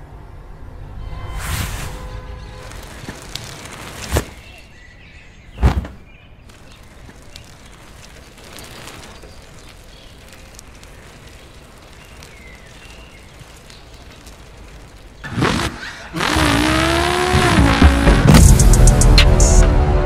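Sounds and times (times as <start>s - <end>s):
sharp loud thump: 5.6s - 6.0s.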